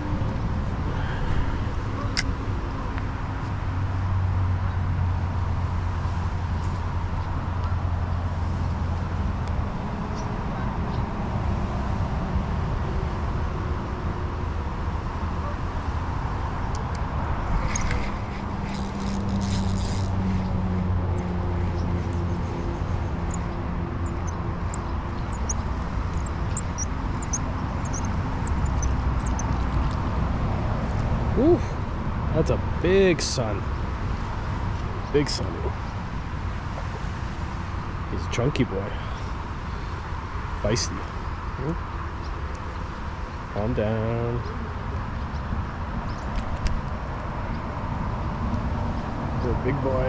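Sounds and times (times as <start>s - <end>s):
wind rumble on microphone: 0.0s - 38.2s
short high chirps: 18.7s - 29.6s.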